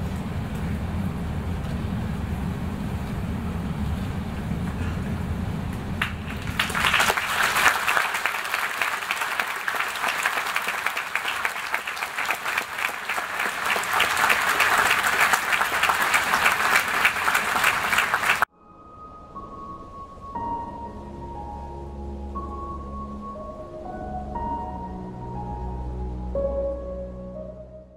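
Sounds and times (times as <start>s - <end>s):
audience applauding: 6.0s - 18.5s
soft music notes: 18.5s - 27.9s.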